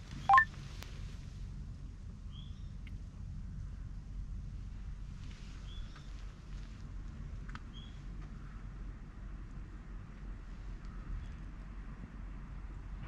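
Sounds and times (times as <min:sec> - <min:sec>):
faint bird chirps: 0:00.2 - 0:00.4.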